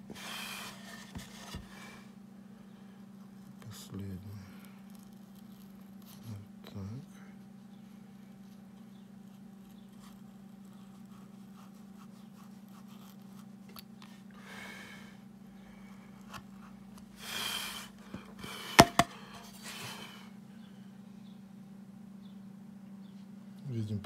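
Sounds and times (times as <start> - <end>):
steady low hum: 0.0 - 24.0
sharp clicks of tool on wood: 18.8 - 19.1.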